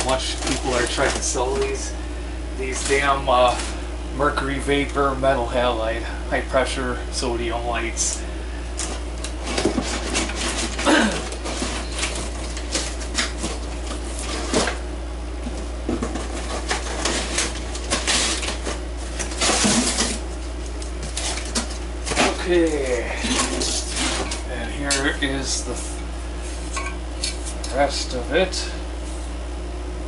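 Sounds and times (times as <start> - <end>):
cardboard rustling and scraping: 0.0 - 1.9, 2.6 - 3.8, 8.8 - 14.8, 15.4 - 27.9.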